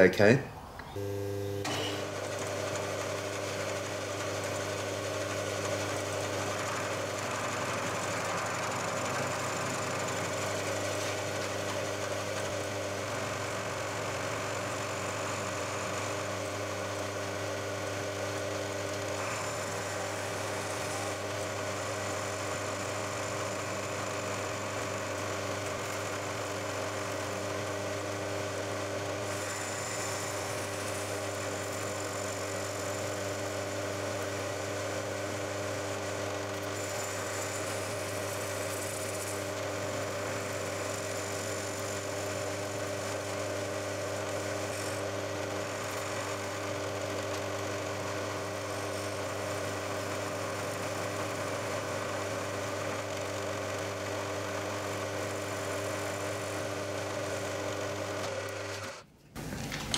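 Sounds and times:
motor hum: 0.0 - 27.7
milling machine cutting metal: 1.0 - 59.0.

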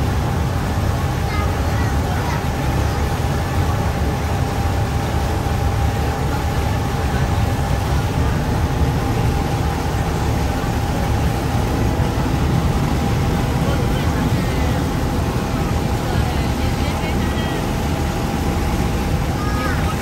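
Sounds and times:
boat engine low rumble: 0.0 - 20.0
faint engine whine: 0.0 - 20.0.

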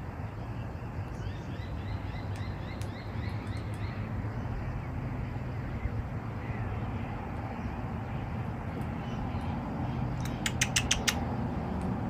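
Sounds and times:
parrot chattering chirps: 10.2 - 11.3.

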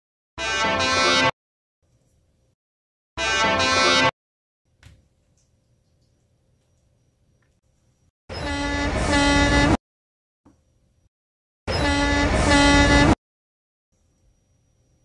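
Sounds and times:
diesel locomotive horn blasts: 0.4 - 1.3, 3.2 - 4.1, 8.3 - 9.8, 11.7 - 13.2.

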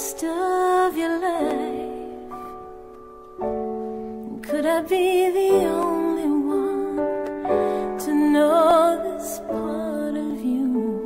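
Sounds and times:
person singing: 0.0 - 2.3, 4.3 - 11.0
keyboard chords: 0.0 - 11.0.

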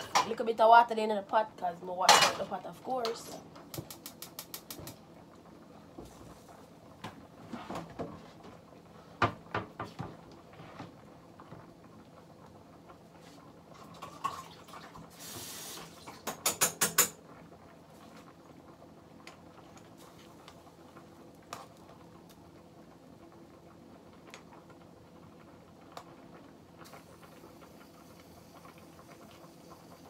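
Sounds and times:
light kitchen knocks: 9.2 - 10.1
gas burner hiss: 15.1 - 17.2, 26.8 - 30.0.

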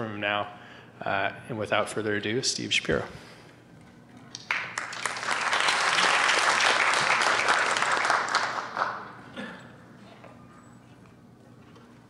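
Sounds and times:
audience applauding: 4.4 - 9.2.

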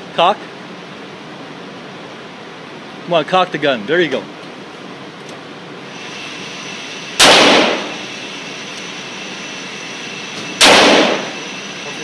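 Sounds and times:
revolver shot with echo: 7.2 - 8.0, 10.6 - 11.4.

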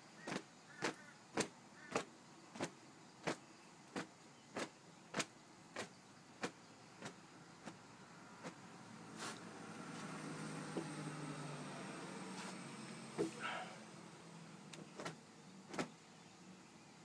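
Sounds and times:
towel swishing against jeans: 8.4 - 10.1, 12.3 - 12.6.

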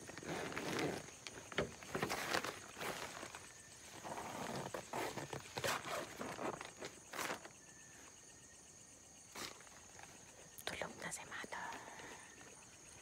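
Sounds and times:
tent fabric rustling: 0.0 - 7.5
tent zipper pulled open: 0.0 - 7.5.

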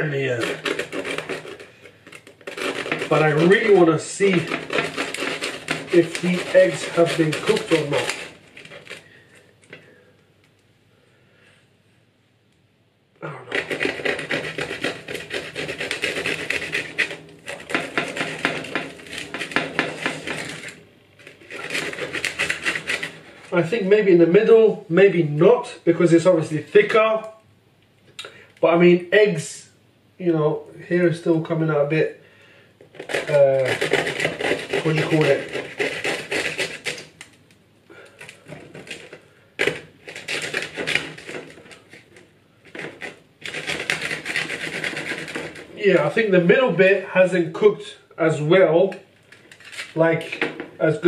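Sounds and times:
knife sawing through bread crust: 0.0 - 9.3, 13.3 - 23.9, 32.9 - 37.2, 38.0 - 46.5.

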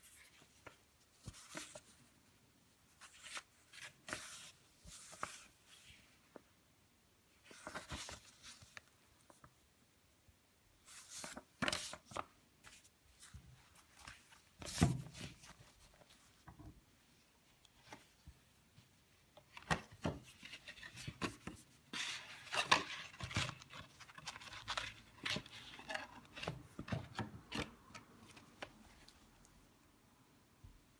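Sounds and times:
paper rustling: 0.0 - 2.1, 2.9 - 6.4, 7.4 - 9.5, 10.8 - 16.6.

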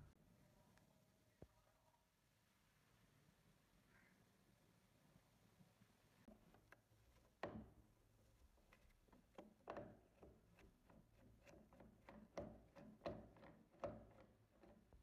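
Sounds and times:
screwdriver clicking and creaking: 8.5 - 15.0.

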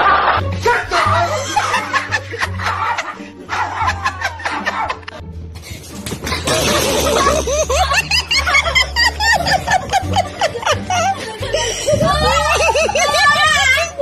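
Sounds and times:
background music: 0.0 - 14.0
laughter: 1.4 - 5.2, 6.2 - 14.0.

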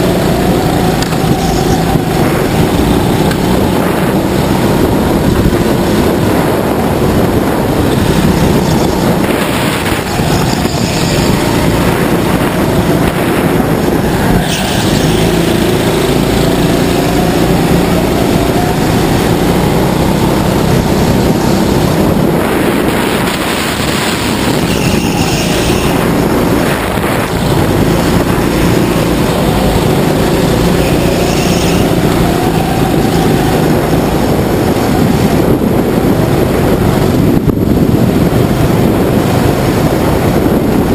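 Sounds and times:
go-kart engine running hard: 0.0 - 40.9.

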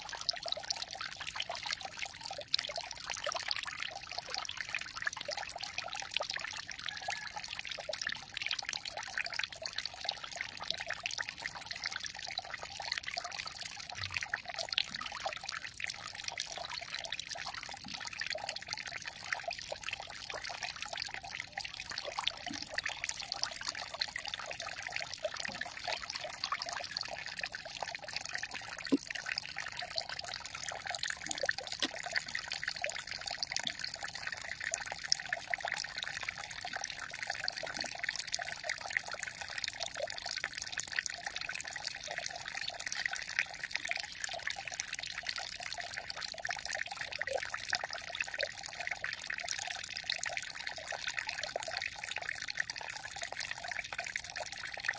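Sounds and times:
water trickling: 0.0 - 54.9.

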